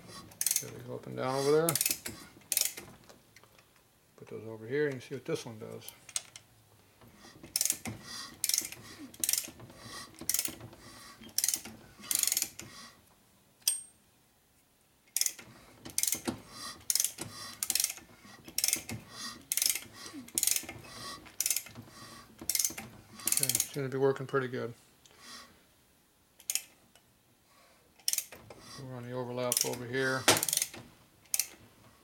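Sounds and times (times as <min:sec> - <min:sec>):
ratchet wrench clicking: 0:00.3 - 0:00.8, 0:01.4 - 0:02.9, 0:07.5 - 0:10.6, 0:11.2 - 0:12.7, 0:15.1 - 0:20.7, 0:21.4 - 0:21.8, 0:22.5 - 0:23.8, 0:26.4 - 0:26.7, 0:28.0 - 0:28.4, 0:29.5 - 0:31.6.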